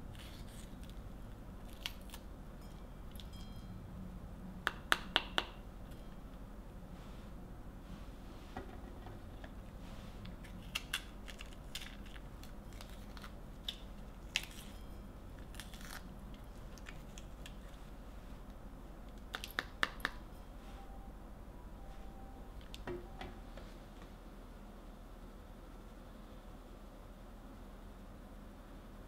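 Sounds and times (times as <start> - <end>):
peppers snapping and crunching: 1.6 - 2.3, 15.4 - 17.6.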